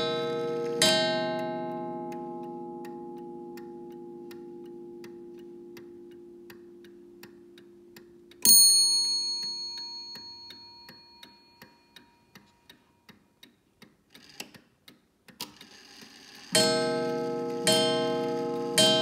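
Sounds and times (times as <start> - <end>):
clock hammer striking bell: 0.0 - 7.8, 8.4 - 12.0, 16.5 - 19.0
clock ticking: 0.0 - 19.0.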